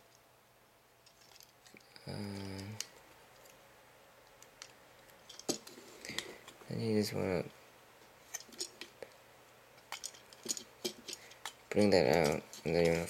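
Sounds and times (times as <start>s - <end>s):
person humming: 2.0s - 2.8s
plastic toy parts clicking: 2.2s - 3.6s, 9.8s - 13.0s.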